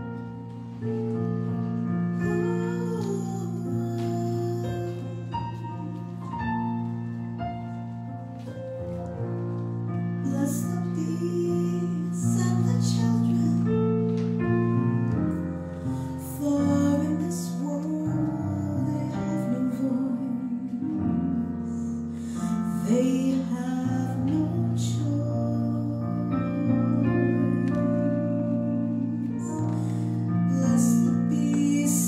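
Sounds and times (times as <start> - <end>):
digital piano playing held chords: 0.0 - 32.0
woman singing into a microphone: 2.2 - 5.6, 10.2 - 13.8, 16.2 - 29.9, 30.5 - 32.0.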